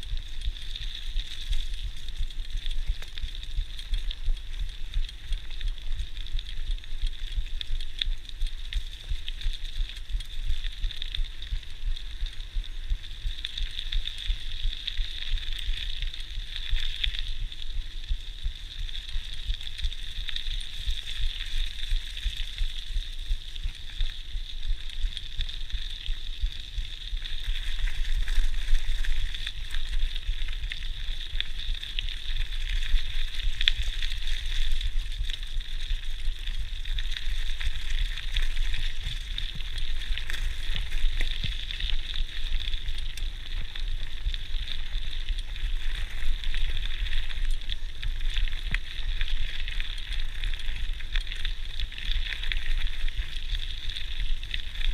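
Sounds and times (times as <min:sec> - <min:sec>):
bike tyres rolling over gravel: 0:00.0 - 0:54.9
wind rumbling on microphone: 0:00.0 - 0:54.9.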